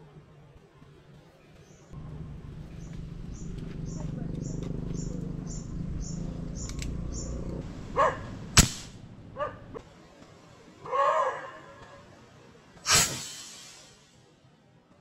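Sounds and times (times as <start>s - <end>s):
steady low hum: 2.0s - 9.8s
dog barking: 8.0s - 8.4s, 9.4s - 9.8s, 10.8s - 11.7s
sharp crack: 8.5s - 9.1s, 12.8s - 14.2s.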